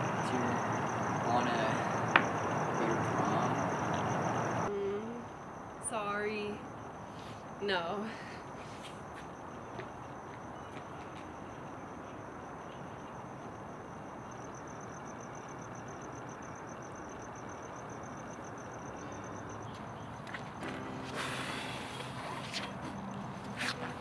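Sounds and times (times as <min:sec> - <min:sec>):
steady background hiss: 0:00.0 - 0:10.4
crickets chirping: 0:00.0 - 0:24.0.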